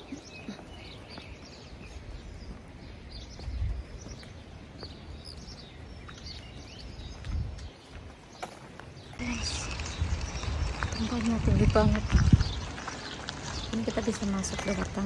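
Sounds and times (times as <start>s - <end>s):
small birds chirping: 0.0s - 15.0s
low rumbles: 9.1s - 15.0s.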